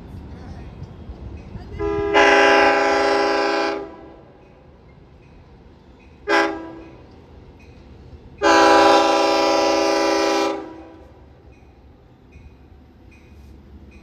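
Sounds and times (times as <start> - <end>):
train low rumble: 0.0 - 14.0
train horn blasts: 1.8 - 4.3, 6.2 - 7.0, 8.4 - 11.2.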